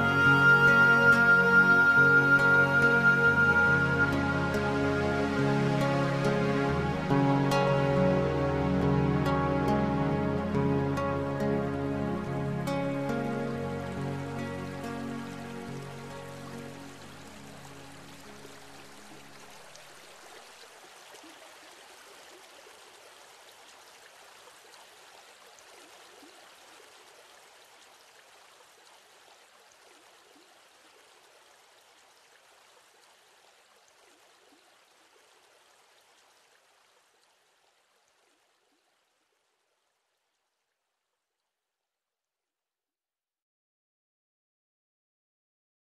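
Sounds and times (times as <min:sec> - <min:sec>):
background music: 0:00.0 - 0:19.4
steady rain: 0:00.0 - 0:40.6.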